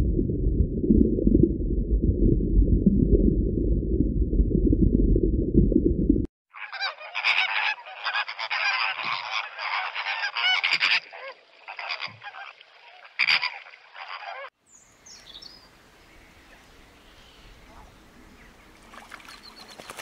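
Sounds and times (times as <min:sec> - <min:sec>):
flamingos honking: 0:06.5 - 0:14.6.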